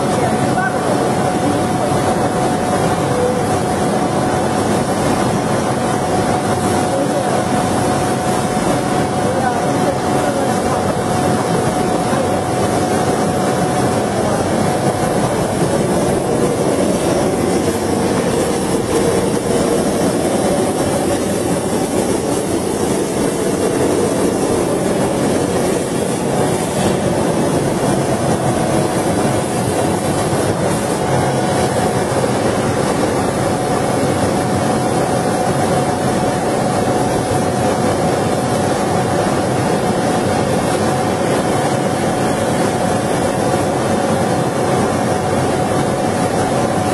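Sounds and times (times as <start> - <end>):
laser cutting machine running: 0.0 - 46.9.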